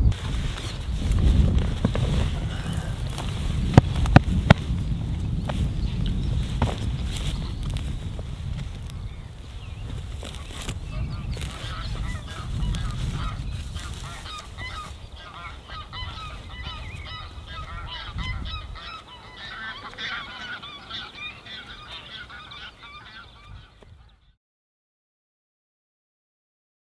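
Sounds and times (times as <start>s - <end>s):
geese honking: 10.2s - 24.1s.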